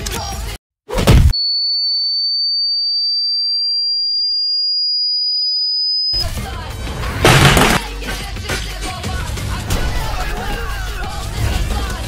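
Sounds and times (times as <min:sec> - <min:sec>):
high pure ringing tone: 0:01.3 - 0:06.2
music: 0:06.2 - 0:12.0
kick hit impact: 0:07.2 - 0:07.9.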